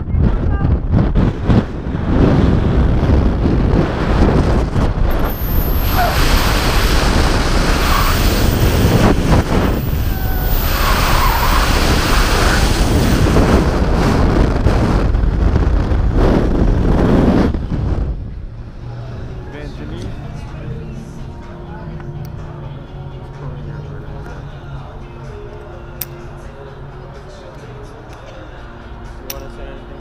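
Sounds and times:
wind buffeting microphone: 0.0 - 19.9.

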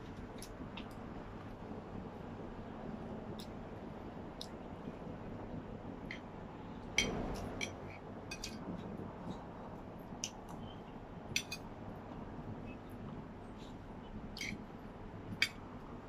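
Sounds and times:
low background noise: 0.0 - 16.0
cutlery clinking on plates: 11.4 - 11.7.

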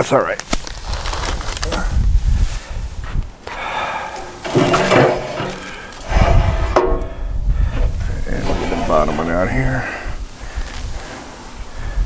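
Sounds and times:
metal rack scraping and clanking: 4.3 - 7.2, 7.8 - 9.7.

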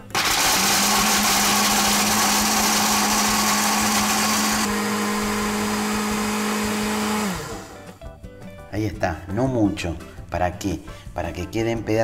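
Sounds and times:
blender motor hum: 0.0 - 7.9
nuts being chopped in blender: 0.1 - 7.7.

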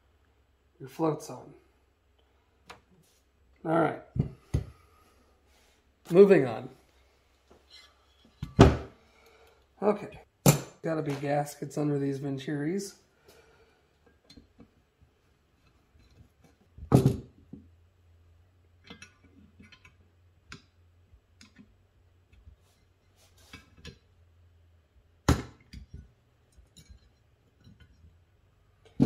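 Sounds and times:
metal parts clicking and clinking: 25.7 - 28.1.

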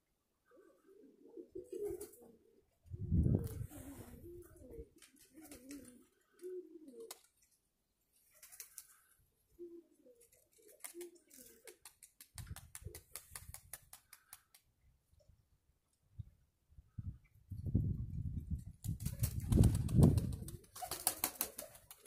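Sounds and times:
pigeons cooing: 0.4 - 7.3, 8.5 - 11.9.

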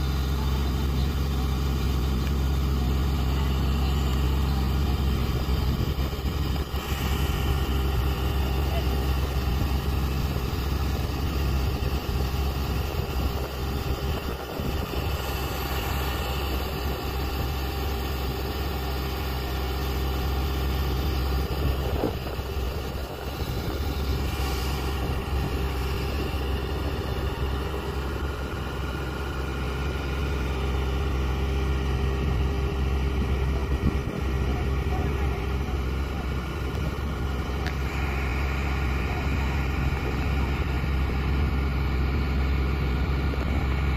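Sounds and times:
diesel truck engine idling: 0.0 - 43.9.

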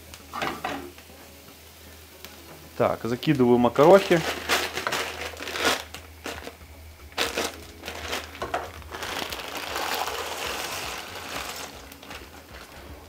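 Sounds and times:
plastic pasta packet crinkling: 3.8 - 6.6, 7.2 - 12.9.

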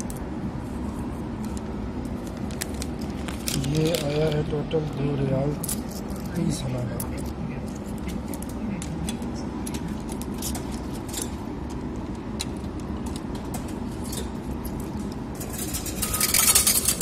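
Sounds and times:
steady low hum: 0.0 - 17.0
coins clattering into tray: 15.4 - 17.0
coins clicking into coin slot: 15.4 - 17.0.

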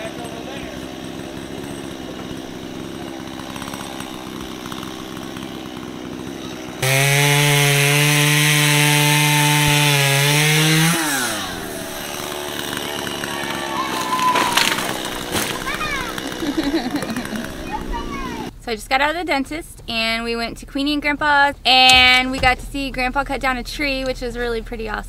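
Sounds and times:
chainsaw revving and cutting: 0.0 - 18.5.

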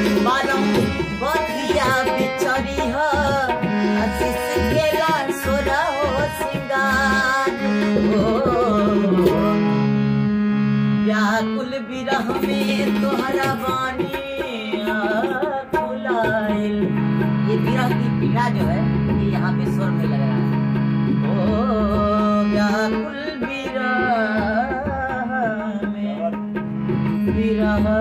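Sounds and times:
hand drum rhythm: 0.0 - 9.6
keyed string instrument strummed: 0.0 - 28.0
man singing devotional song: 0.0 - 28.0.

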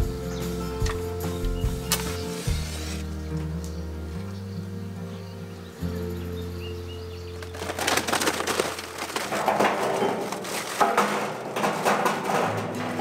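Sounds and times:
background music: 0.0 - 13.0
paper bag rustling: 7.3 - 13.0
charcoal clattering into metal: 7.4 - 13.0.

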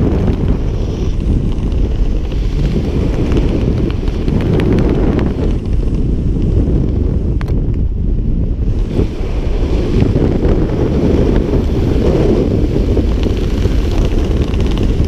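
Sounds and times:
faint crackles: 0.0 - 7.9, 11.2 - 15.0
wind buffeting microphone: 0.0 - 15.0.

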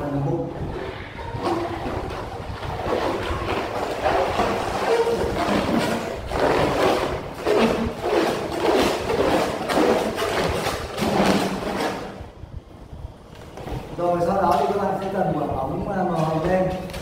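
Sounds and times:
balloon rubbing and squeaking: 0.6 - 12.4.

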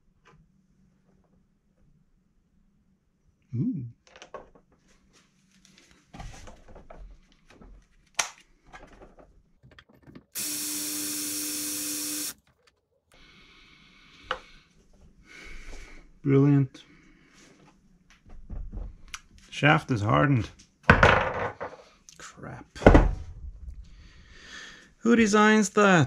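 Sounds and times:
handling clicks and knocks: 8.2 - 10.4
cordless drill running: 10.3 - 12.5.

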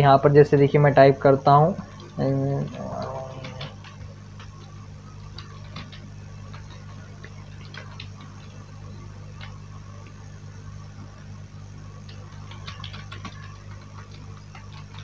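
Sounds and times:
keyboard keys clicking: 1.9 - 4.6, 5.2 - 8.6, 12.0 - 15.0.

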